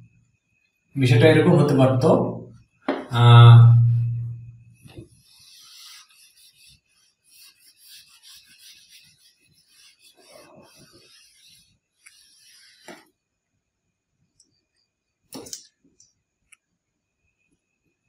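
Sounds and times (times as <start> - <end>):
eraser scrubbing whiteboard: 4.9 - 13.2.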